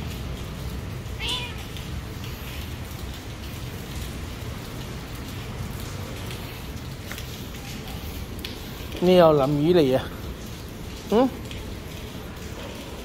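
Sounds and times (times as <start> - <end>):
rain hissing: 0.0 - 13.0
cat meowing: 1.1 - 1.9.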